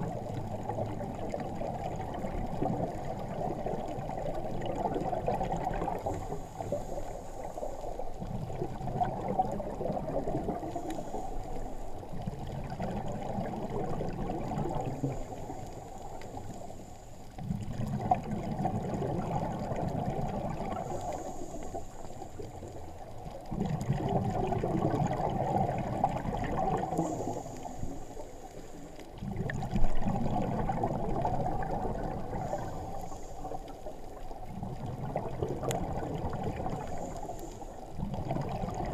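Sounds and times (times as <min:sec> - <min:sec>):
exhaled bubbles underwater: 0:00.0 - 0:38.9
regulator inhale hiss: 0:06.0 - 0:08.2, 0:10.5 - 0:12.2, 0:14.8 - 0:17.4, 0:20.6 - 0:22.8, 0:26.8 - 0:29.0, 0:32.2 - 0:34.3, 0:36.7 - 0:37.9.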